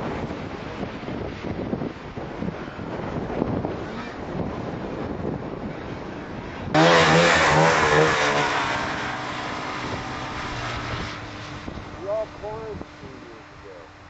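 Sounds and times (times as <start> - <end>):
wind rushing: 0.0 - 13.6
snowmobile engine revving: 6.7 - 13.9.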